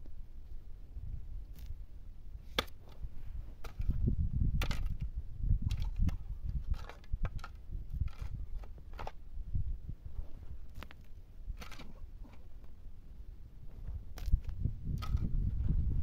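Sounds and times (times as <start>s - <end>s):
spade digging stony soil: 2.4s - 9.2s, 10.2s - 12.8s
steady low rumble: 7.6s - 16.0s.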